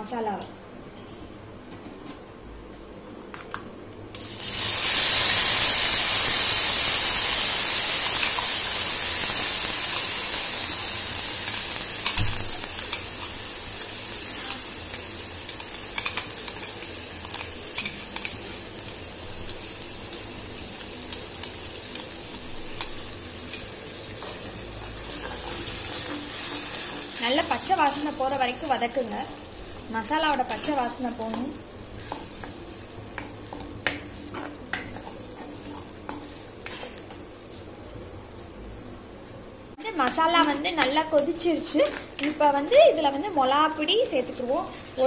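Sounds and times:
paste sizzling in hot oil: 4.2 - 37.2.

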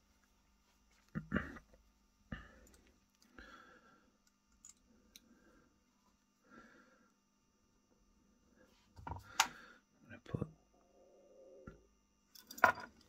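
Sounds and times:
faint clicks of metal parts: 2.6 - 3.4, 4.2 - 5.4, 12.3 - 13.0.

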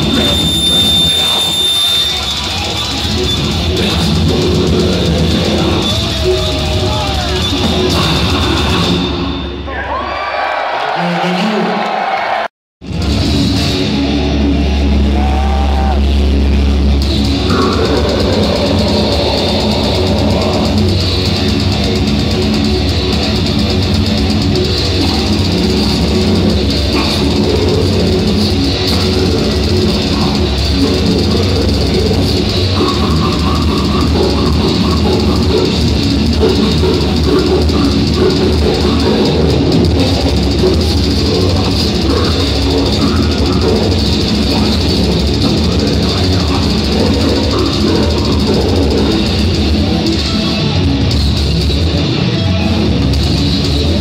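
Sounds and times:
death metal band playing: 0.0 - 9.8, 12.8 - 54.0.

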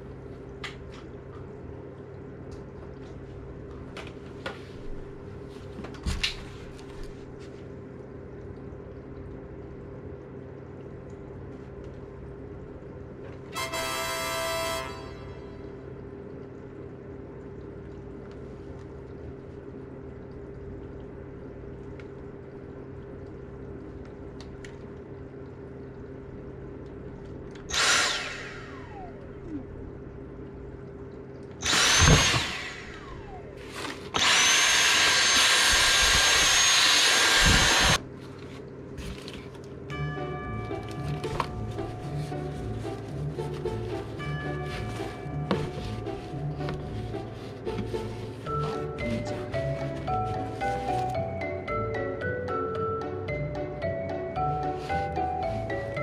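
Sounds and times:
small electric motor whining: 27.7 - 29.2, 31.6 - 33.5, 34.1 - 38.0.

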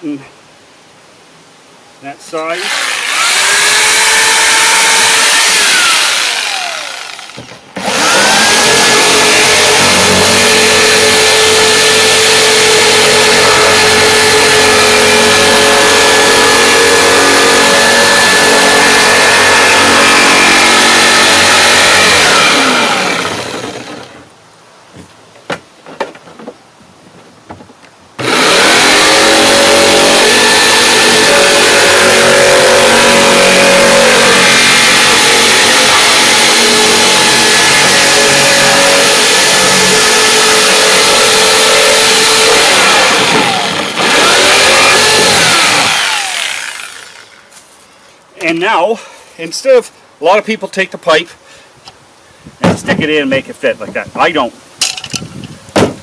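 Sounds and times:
jigsaw cutting plastic: 2.6 - 24.2, 28.2 - 47.4.

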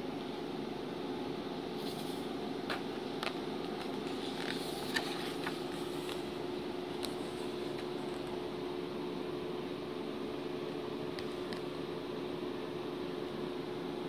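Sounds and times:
steady background hum: 0.0 - 14.0
glossy pages crackling: 1.8 - 8.4.

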